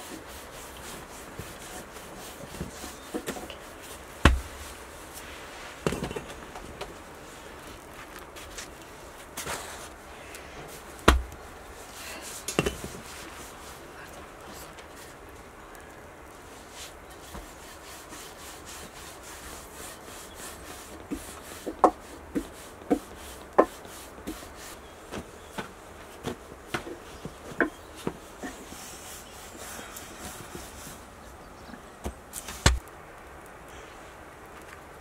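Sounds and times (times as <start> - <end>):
dry bread crackling: 0.0 - 17.4
faint steady hiss: 0.0 - 35.0.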